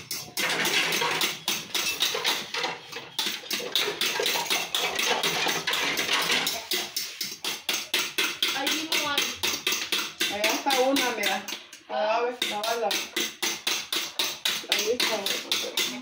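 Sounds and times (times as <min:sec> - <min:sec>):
spoon beating batter in a bowl: 0:00.0 - 0:16.0.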